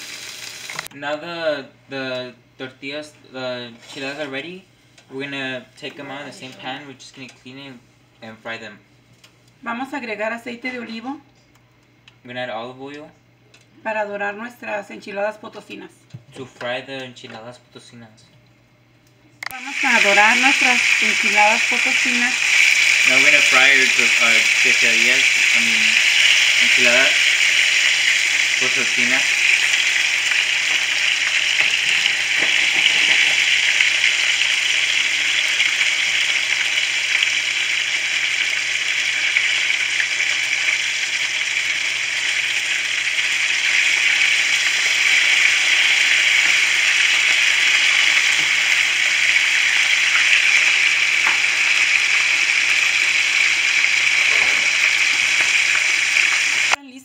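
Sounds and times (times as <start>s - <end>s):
food sizzling in a frying pan: 0.0s - 0.9s, 19.5s - 56.8s.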